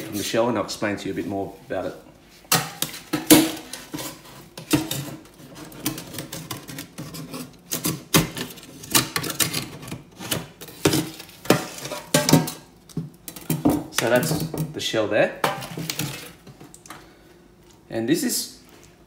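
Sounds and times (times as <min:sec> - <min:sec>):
knife scraping clam shell: 0:03.7 - 0:10.9.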